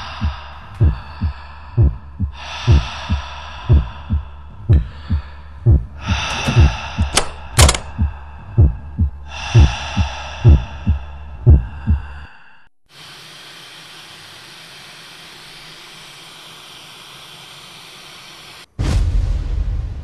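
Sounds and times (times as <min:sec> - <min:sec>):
heartbeat thumps: 0:00.0 - 0:12.2
loud low rumble: 0:00.0 - 0:12.2
breathy whooshing drone: 0:00.0 - 0:12.7.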